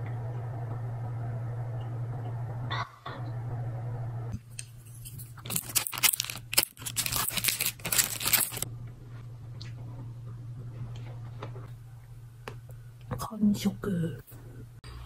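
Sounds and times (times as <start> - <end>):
plastic wrapper crinkling and tearing: 5.4 - 8.7.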